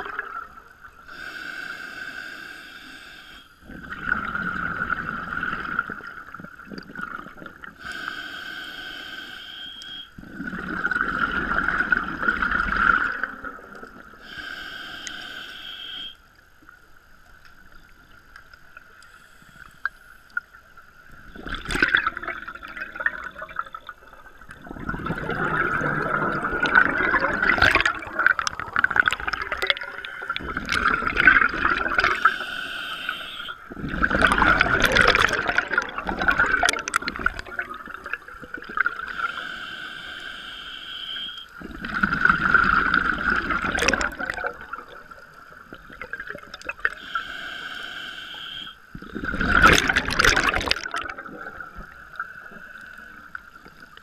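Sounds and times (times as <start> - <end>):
regulator inhale hiss: 1.1 - 3.6, 7.8 - 10.2, 14.0 - 16.3, 19.0 - 20.3, 32.0 - 33.7, 39.0 - 41.6, 46.8 - 49.1
gurgling exhaust bubbles: 24.6 - 32.2, 33.7 - 39.1, 41.6 - 45.0, 49.0 - 52.0.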